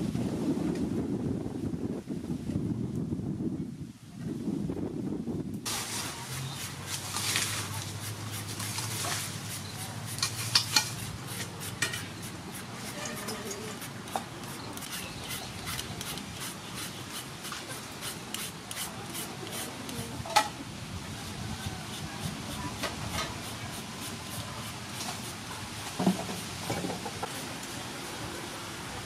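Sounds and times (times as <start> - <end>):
peeler scraping mango: 5.7 - 20.1, 21.2 - 27.6.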